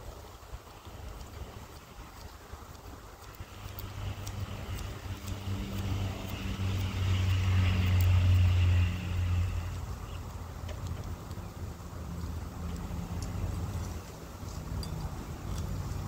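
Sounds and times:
vehicle engine passing by: 0:03.4 - 0:16.0.

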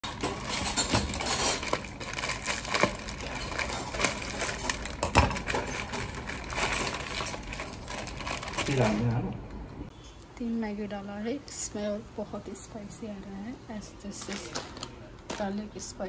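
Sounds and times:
plastic tearing: 0:00.2 - 0:09.2
plastic wrapper crinkling: 0:00.3 - 0:09.2, 0:14.2 - 0:15.6.

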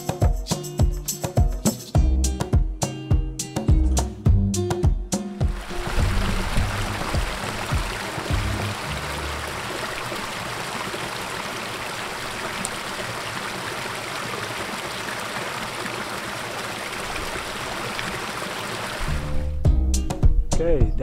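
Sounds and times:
stream running over rocks: 0:05.4 - 0:19.4.

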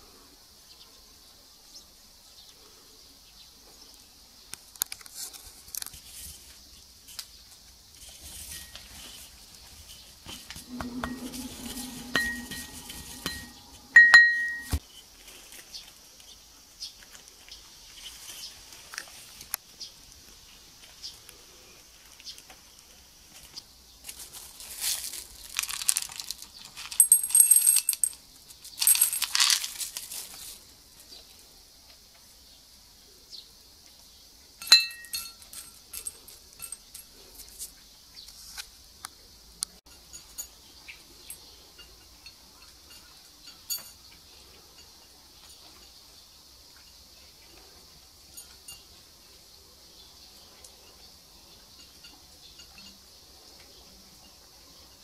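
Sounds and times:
ringing clinks of ceramic bowl: 0:10.6 - 0:14.8, 0:34.6 - 0:35.7, 0:41.3 - 0:44.0.

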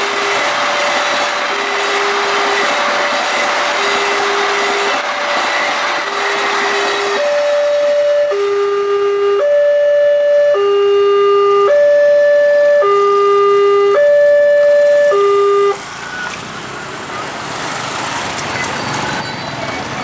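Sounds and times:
level crossing two-tone alarm: 0:07.1 - 0:15.8.

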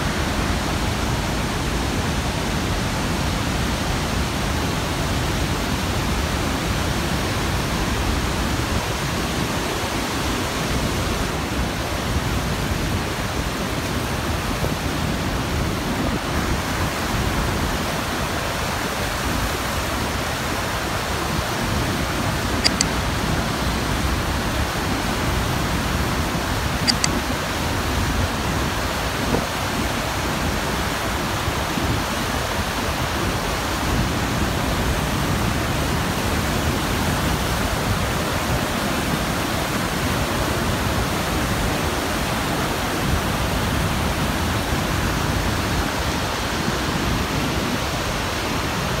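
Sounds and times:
waterfall rushing: 0:00.0 - 0:49.0.

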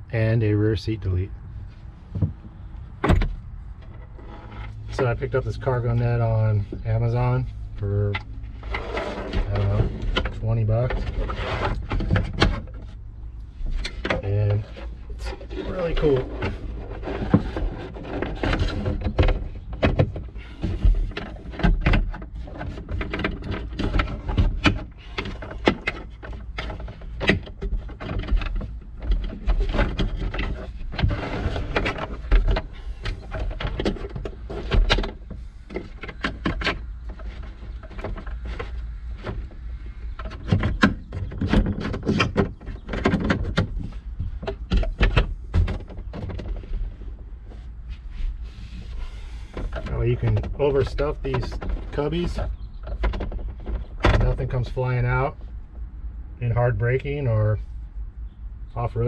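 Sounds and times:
cargo net clicks and rustling: 0:13.7 - 0:54.6.

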